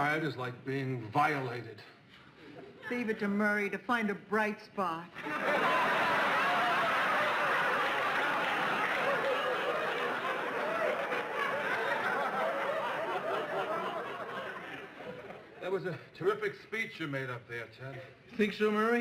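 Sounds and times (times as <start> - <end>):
studio audience laughing: 5.2 - 15.5.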